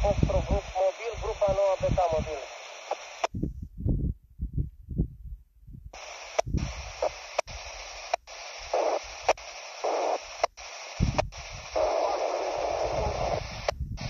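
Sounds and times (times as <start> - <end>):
radio static hiss: 0.0 - 3.3, 6.0 - 14.0
sharp clicks: 6.0 - 11.9.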